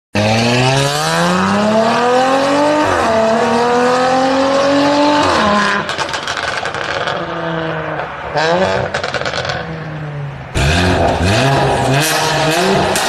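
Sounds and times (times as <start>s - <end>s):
car engine accelerating hard: 0.2s - 7.7s, 10.5s - 13.0s
exhaust crackles and pops: 5.8s - 7.4s, 8.8s - 9.8s.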